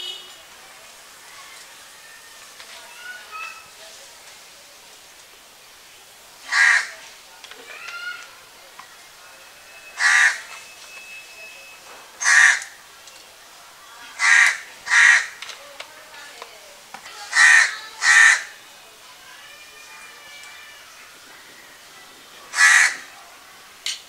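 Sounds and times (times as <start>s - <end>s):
crow cawing: 6.5s - 7.0s, 10.0s - 10.5s, 12.2s - 12.8s, 14.2s - 15.4s, 17.3s - 18.6s, 22.5s - 23.1s.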